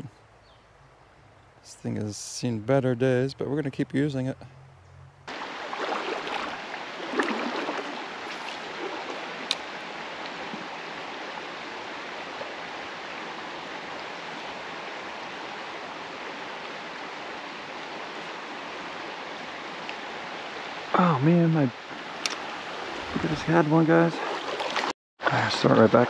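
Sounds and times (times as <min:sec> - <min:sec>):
splashing and rustling: 0:05.3 - 0:14.6, 0:22.0 - 0:24.9
creek water flowing: 0:05.3 - 0:26.0.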